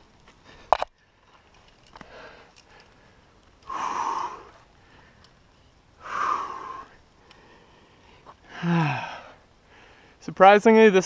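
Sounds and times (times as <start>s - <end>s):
person breathing hard: 2.0s - 5.3s, 6.0s - 10.2s.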